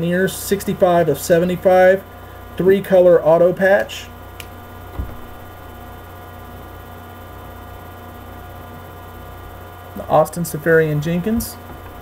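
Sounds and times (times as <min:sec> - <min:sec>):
electrical mains hum: 0:00.0 - 0:12.0
soft low bump: 0:04.8 - 0:05.7.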